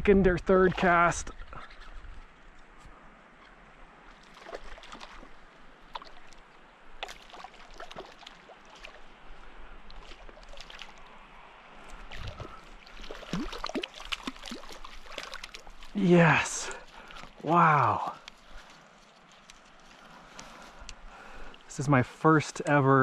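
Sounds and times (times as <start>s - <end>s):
fish splashing in water: 4.1s - 6.4s, 7.0s - 9.2s, 9.9s - 11.2s, 11.9s - 15.9s.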